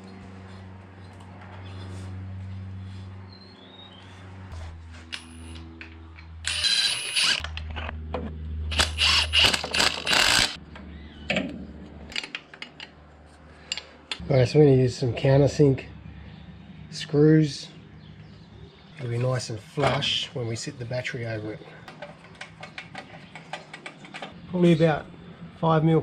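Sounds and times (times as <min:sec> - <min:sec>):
power tool cutting metal: 0:06.4 - 0:07.5, 0:08.7 - 0:10.6.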